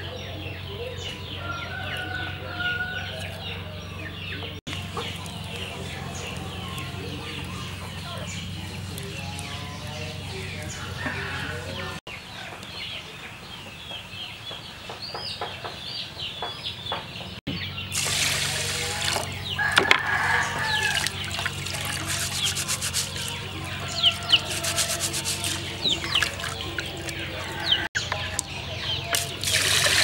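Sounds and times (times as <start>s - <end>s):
chickens clucking: 0.0s - 14.0s, 14.8s - 29.5s
water sloshing in a metal pot: 20.8s - 23.7s, 25.3s - 27.5s, 29.1s - 30.0s.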